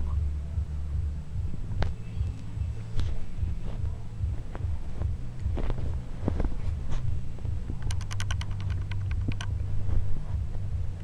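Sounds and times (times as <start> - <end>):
low rumble: 0.0 - 11.0
dog teeth clicking while chewing: 7.8 - 9.6.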